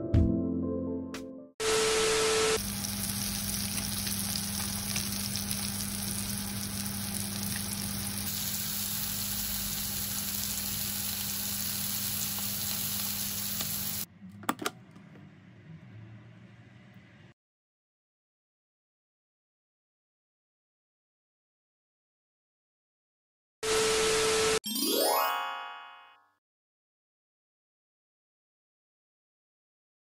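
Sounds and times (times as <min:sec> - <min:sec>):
static hiss: 0:01.6 - 0:03.4
chicken sizzling in a frying pan: 0:01.6 - 0:14.1.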